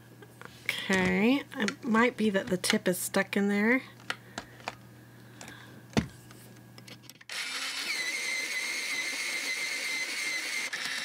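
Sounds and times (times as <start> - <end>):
electric pencil sharpener grinding: 7.3 - 11.0.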